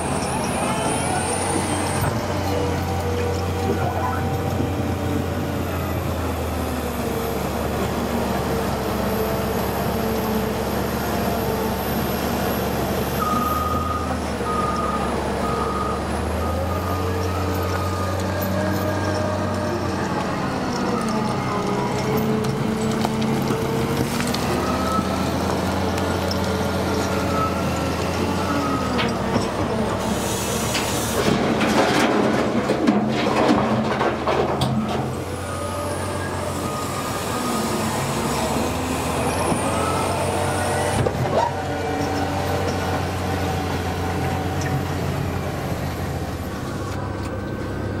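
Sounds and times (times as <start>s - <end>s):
heavy engines running: 0.0s - 48.0s
rocks clattering into truck bed: 31.2s - 35.0s.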